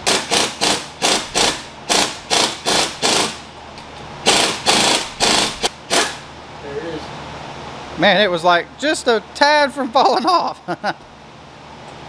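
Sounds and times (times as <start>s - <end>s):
impact wrench hammering: 0.0s - 3.4s, 4.2s - 6.2s.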